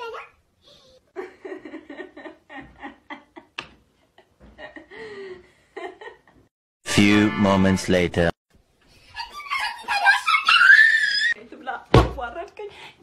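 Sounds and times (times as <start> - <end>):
woman laughing: 1.1 - 6.4.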